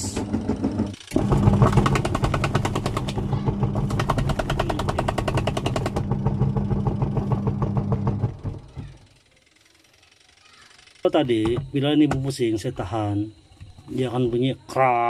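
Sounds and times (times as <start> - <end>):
washing machine motor hum: 0.0 - 9.3
rapid ticking from drive belt: 0.1 - 9.1.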